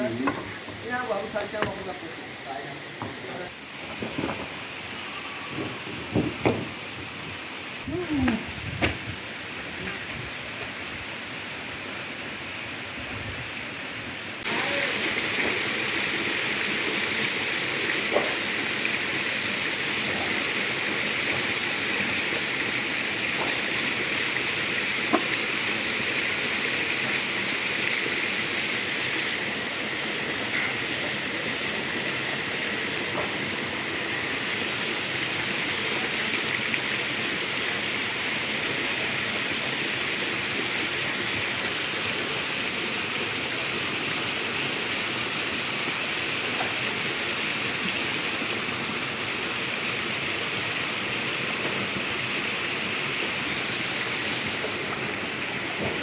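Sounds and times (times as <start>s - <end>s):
running water rushing: 0.0s - 56.0s.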